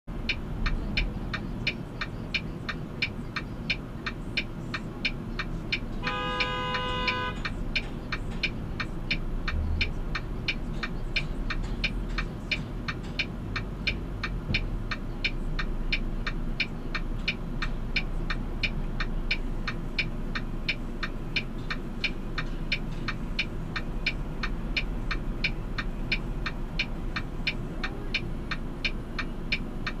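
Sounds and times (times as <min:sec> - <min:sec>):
steady ticking: 0:00.1 - 0:30.0
truck engine idling: 0:00.1 - 0:30.0.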